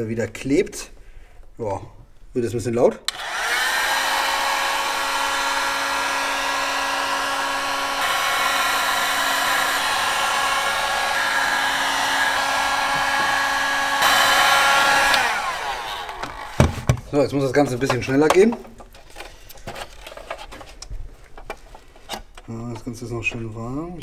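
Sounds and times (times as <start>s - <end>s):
heat gun fan whine: 3.1s - 17.0s.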